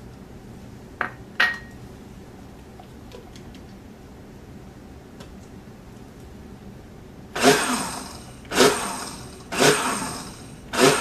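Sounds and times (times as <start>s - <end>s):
blender pulsing: 7.4s - 11.0s.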